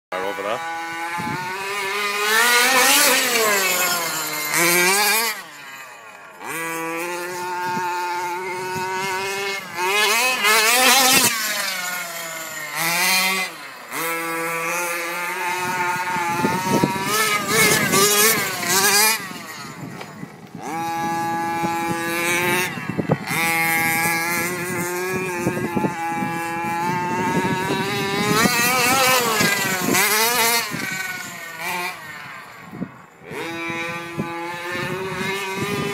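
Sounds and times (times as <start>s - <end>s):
small nitro engine revving: 0.2s - 35.9s.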